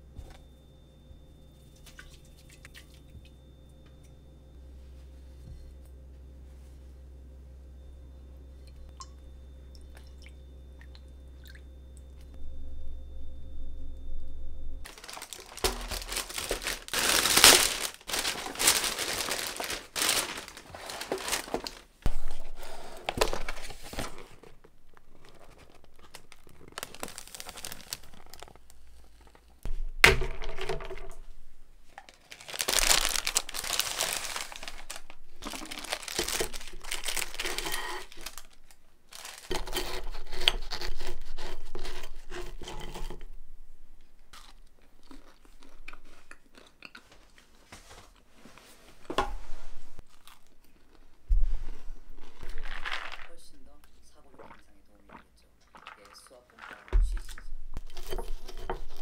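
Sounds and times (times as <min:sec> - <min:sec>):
plastic bags crinkling: 0:14.8 - 0:22.0, 0:23.1 - 0:29.6, 0:31.8 - 0:43.1, 0:52.2 - 0:53.8, 0:55.6 - 0:59.0
paperboard box opening: 0:14.9 - 0:21.8.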